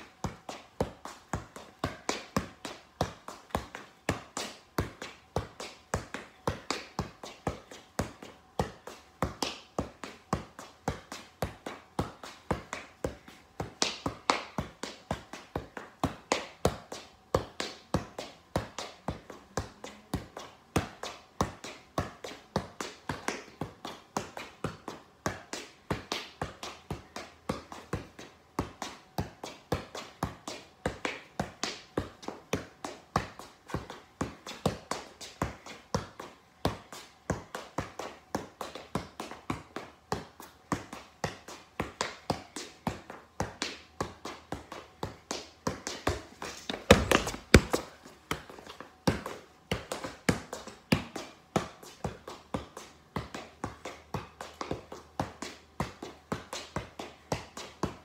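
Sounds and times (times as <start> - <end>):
ball hollow taps: 40.7 - 58.0.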